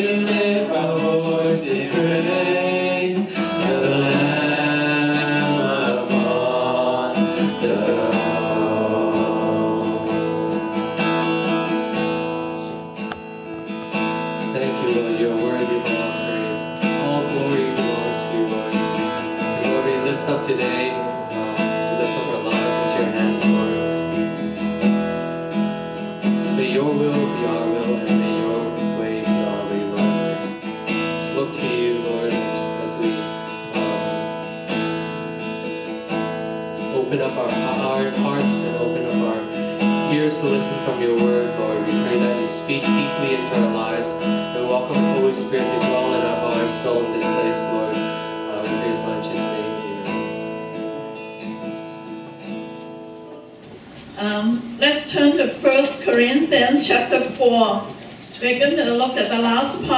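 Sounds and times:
man singing: 0.0s - 11.9s, 14.4s - 24.3s, 26.3s - 34.4s, 36.8s - 50.4s
strummed acoustic guitar: 0.0s - 59.9s.

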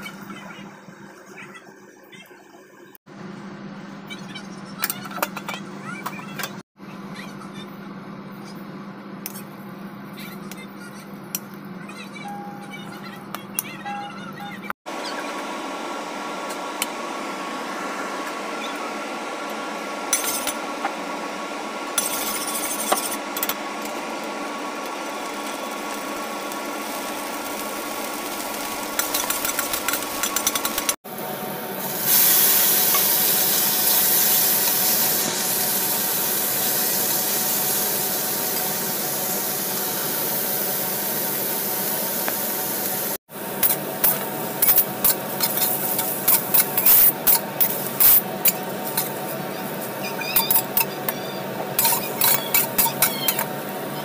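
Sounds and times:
steady background hum: 0.0s - 54.0s
oil sizzling: 15.4s - 54.0s
spatula clicking and scraping wok: 28.9s - 31.0s, 43.6s - 49.3s.

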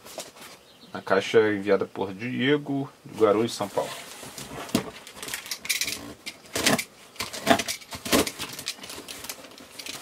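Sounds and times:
cardboard box scraping and knocking: 3.8s - 5.0s.

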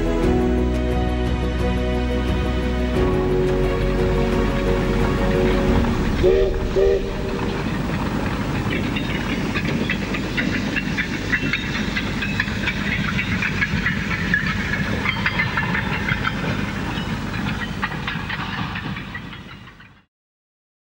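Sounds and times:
low rumble: 0.0s - 17.5s
steam hissing: 3.4s - 19.8s
metallic clicks and squeals: 7.2s - 20.0s.

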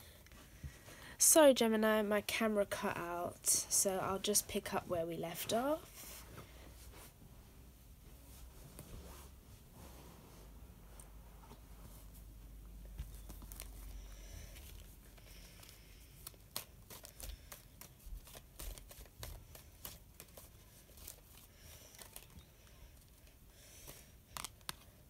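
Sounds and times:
paper rustling: 13.0s - 22.4s.

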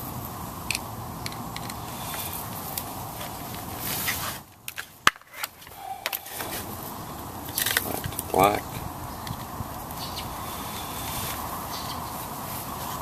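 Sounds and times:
background hiss: 0.0s - 13.0s
metal clips clicking and rattling: 7.5s - 8.3s.

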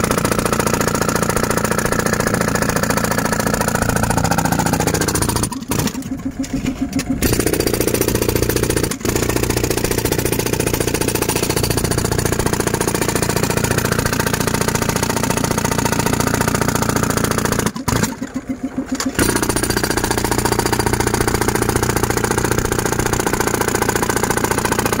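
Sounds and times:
air hammer chipping soil: 0.0s - 25.0s
compressor engine running: 0.0s - 25.0s.

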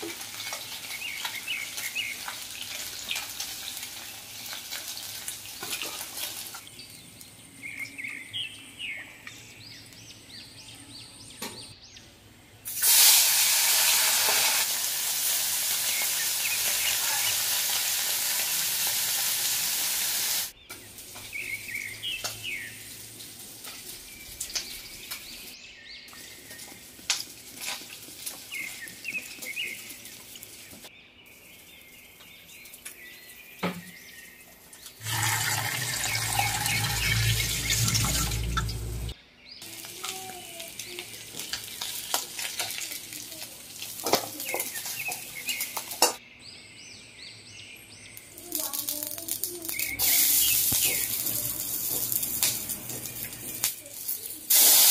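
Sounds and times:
fish frying in hot oil: 0.0s - 6.6s, 12.7s - 25.2s, 35.0s - 46.1s, 48.6s - 54.9s
birds chirping: 20.5s - 27.1s, 28.3s - 54.5s.

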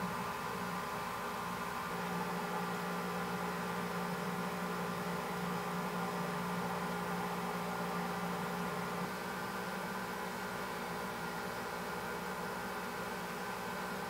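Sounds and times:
machine hum with hiss: 0.0s - 14.0s.

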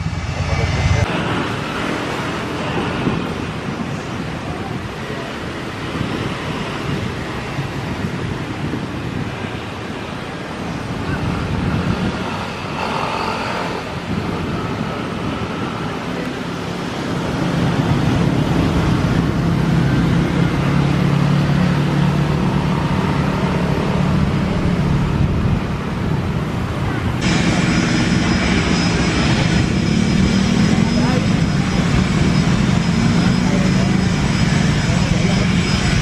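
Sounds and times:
low engine rumble: 0.0s - 1.2s
jet engine whine: 0.0s - 36.0s
voices: 26.4s - 36.0s.

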